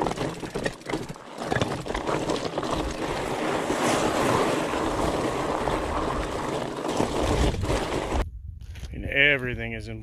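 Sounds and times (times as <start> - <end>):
tyres crunching over gravel: 0.0 - 8.2
wind noise on microphone: 3.2 - 10.0.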